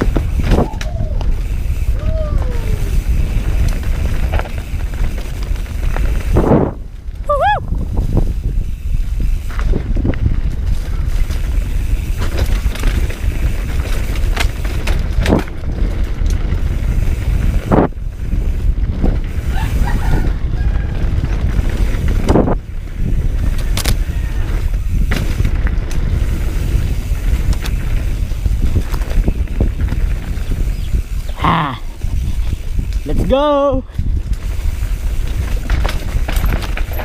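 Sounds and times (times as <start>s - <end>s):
bike knocking and rattling: 0.0s - 37.0s
tyres on dirt: 0.0s - 37.0s
wind on microphone: 0.0s - 37.0s.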